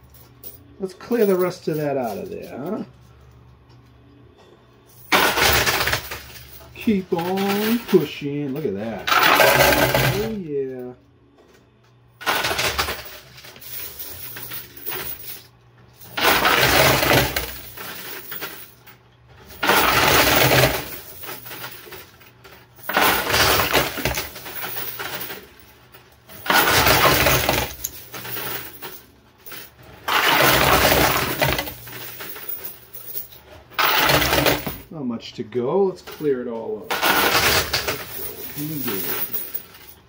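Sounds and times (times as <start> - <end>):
coins clattering off pusher: 5.0 - 10.4, 12.2 - 34.9, 36.0 - 40.0
quiet coin rattling: 5.0 - 10.4, 12.2 - 34.8, 36.9 - 40.0.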